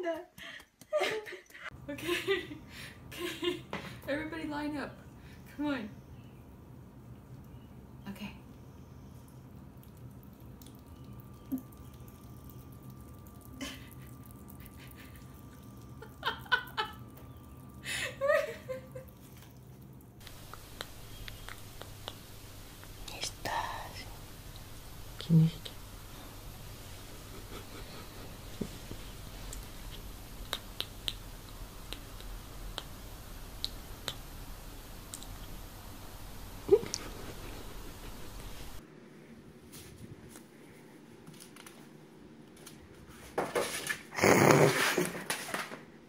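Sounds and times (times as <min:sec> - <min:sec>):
kitten licking wet clicks: 0:09.3 - 0:17.8, 0:19.0 - 0:23.3, 0:29.0 - 0:35.6.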